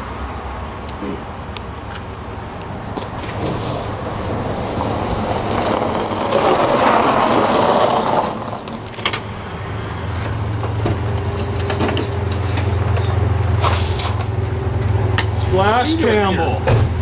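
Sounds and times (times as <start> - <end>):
tyres crunching over gravel: 1.8 - 9.4
engine idling hum: 8.5 - 17.0.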